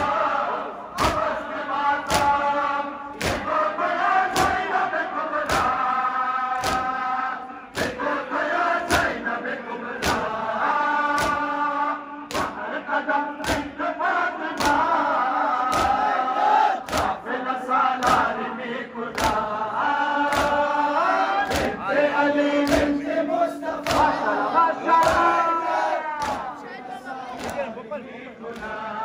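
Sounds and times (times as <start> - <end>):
crowd chanting in unison: 0.0 - 29.0
rhythmic chest-beating: 0.0 - 29.0.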